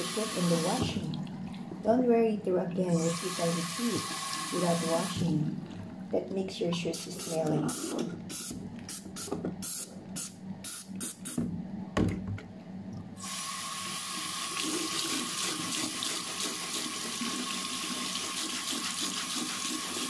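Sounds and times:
tap water running into sink: 0.0s - 1.2s, 3.0s - 5.4s.

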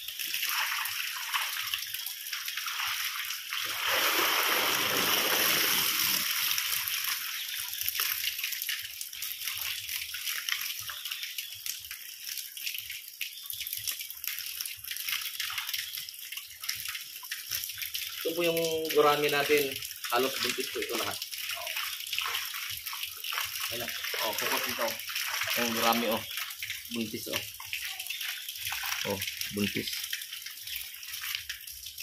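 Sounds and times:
water trickling from basket: 0.0s - 32.0s
fish thrashing in water: 2.6s - 7.4s.

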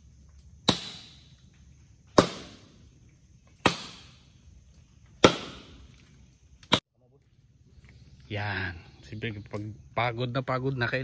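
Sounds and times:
blade chopping into wood: 0.6s - 1.2s, 2.1s - 2.7s, 3.6s - 4.2s, 5.2s - 5.8s.

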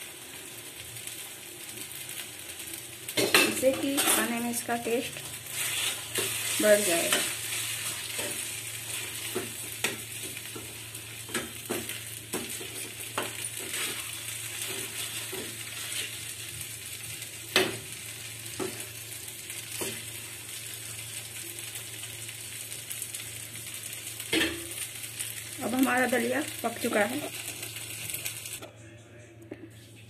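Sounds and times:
food sizzling in a pan: 0.0s - 28.6s
spatula scraping a pan: 5.3s - 10.0s, 12.3s - 16.3s.

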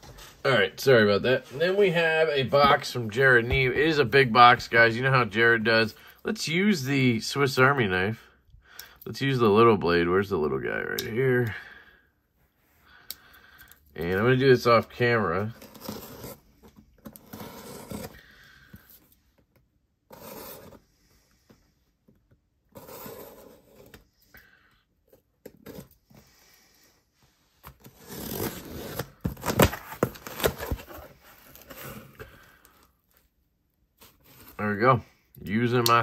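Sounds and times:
knife blade scraping cardboard: 17.2s - 18.2s.

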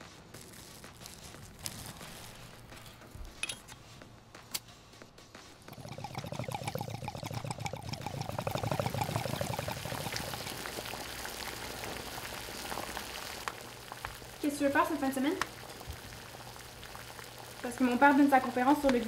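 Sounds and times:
water bubbling at a boil: 5.6s - 19.0s.

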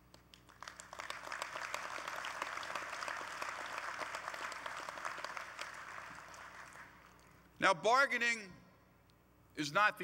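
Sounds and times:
audience applauding: 0.3s - 7.4s.

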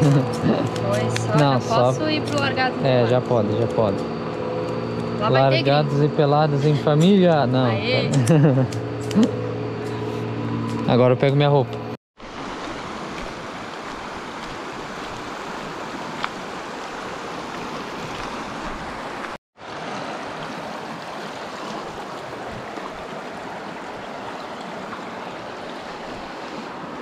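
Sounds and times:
river flowing: 0.0s - 6.7s, 12.2s - 27.0s.

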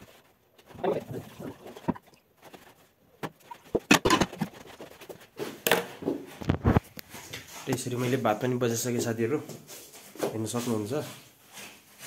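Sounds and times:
water splashing: 0.6s - 4.6s
metal pot knocking and clanking: 3.8s - 4.5s.

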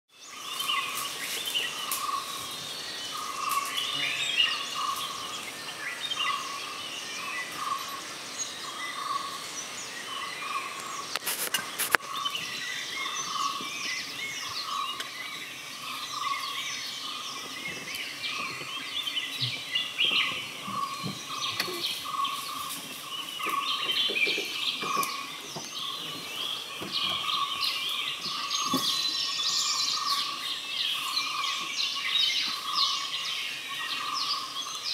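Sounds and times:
birds chirping: 0.1s - 34.9s.

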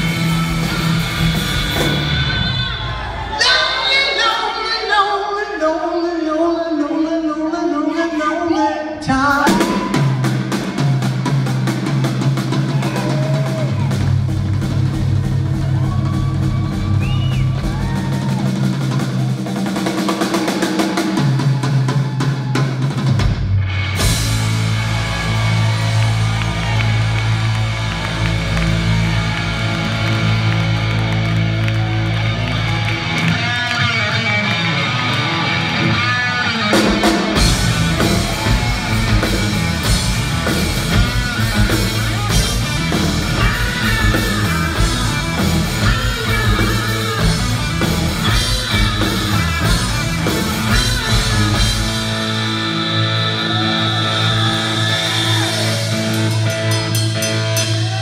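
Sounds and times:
electric guitar: 0.0s - 3.4s, 23.2s - 58.0s
drum kit: 0.0s - 4.0s, 9.3s - 58.0s
bass guitar: 0.0s - 4.4s, 9.0s - 58.0s.

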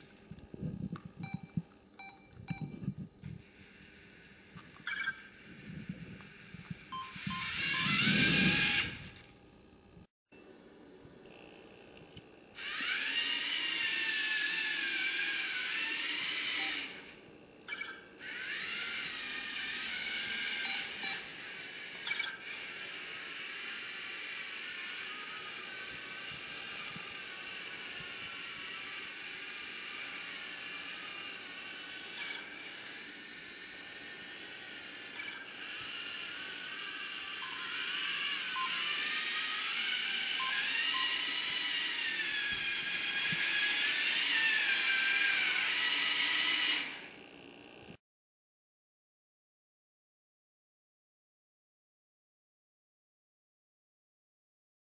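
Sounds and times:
toy motors whining: 2.0s - 9.3s, 12.5s - 47.4s.

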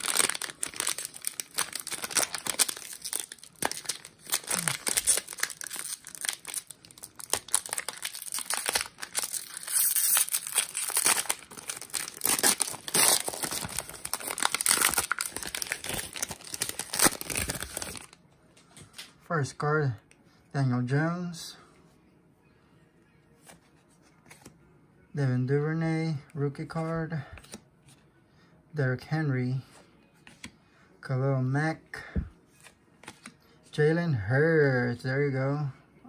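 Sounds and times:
foil wrappers torn and crumpled: 0.0s - 18.2s.

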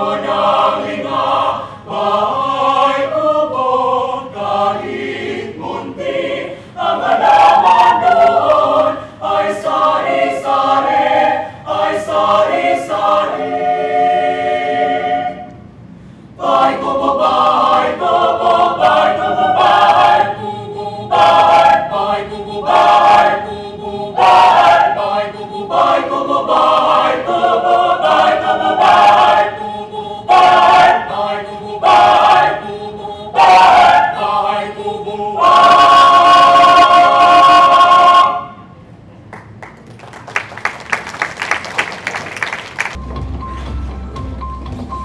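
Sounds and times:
mixed choir singing a cappella: 0.0s - 38.8s
applause: 39.3s - 43.0s.

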